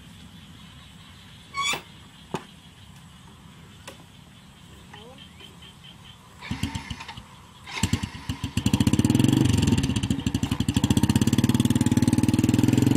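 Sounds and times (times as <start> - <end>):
motorcycle engine starting and running: 6.4 - 12.9.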